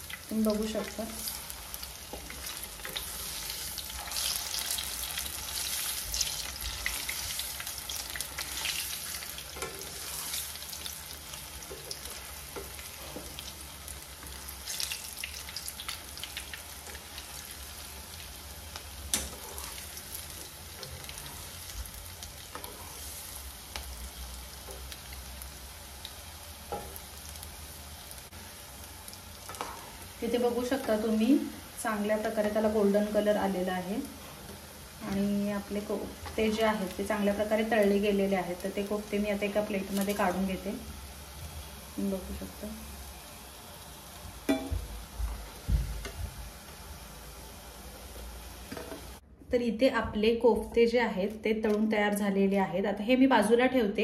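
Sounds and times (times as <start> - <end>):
deep-frying sizzle with crackles: 0.0 - 49.2
wooden spatula scraping: 8.4 - 10.6, 19.1 - 20.0, 22.5 - 23.2.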